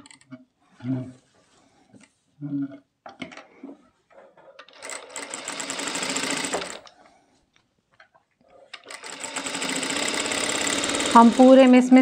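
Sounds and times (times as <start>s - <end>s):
sewing machine stitching: 4.6s - 6.9s, 8.7s - 12.0s.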